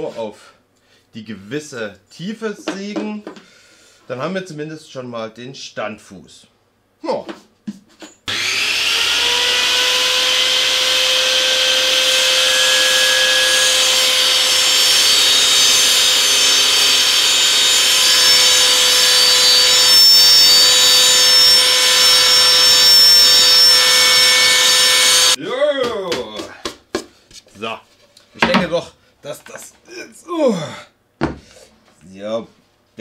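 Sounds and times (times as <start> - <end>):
table saw cutting board: 8.3 - 25.4.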